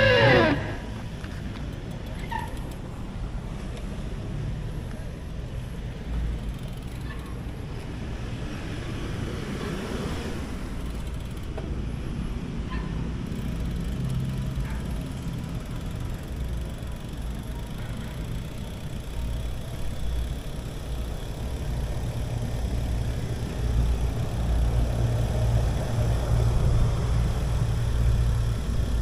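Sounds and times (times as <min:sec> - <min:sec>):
car passing: 0:00.0 - 0:01.1
bike road noise: 0:00.0 - 0:29.0.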